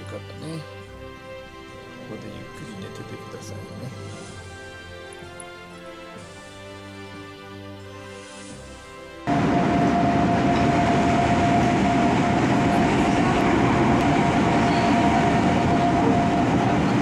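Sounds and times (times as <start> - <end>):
steady train whine: 0.8 - 17.0
train running inside carriage: 9.3 - 17.0.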